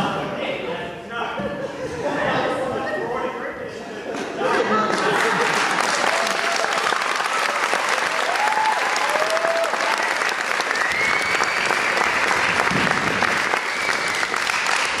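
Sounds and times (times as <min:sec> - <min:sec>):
audience applauding: 0:04.7 - 0:15.0
cheers and whoops: 0:05.8 - 0:12.4.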